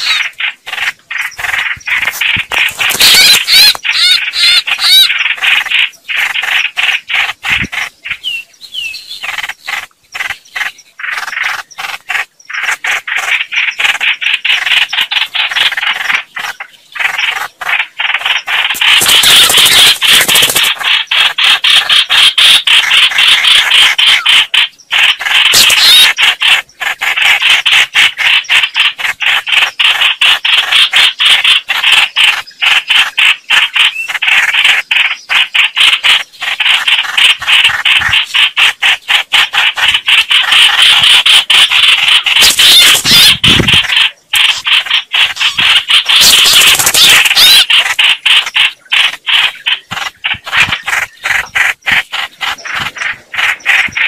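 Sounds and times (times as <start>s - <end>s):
birds chattering harshly: 0.0s - 54.0s.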